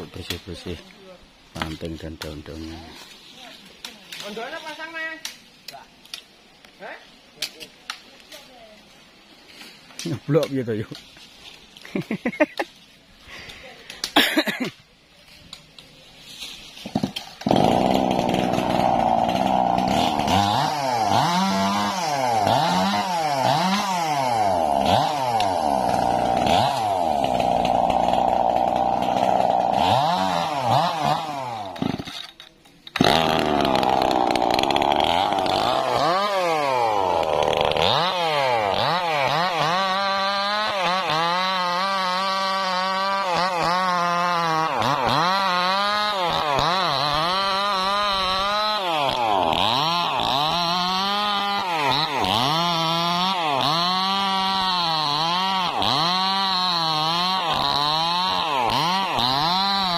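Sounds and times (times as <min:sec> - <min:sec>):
chainsaw cutting wood: 0:16.4 - 0:59.9.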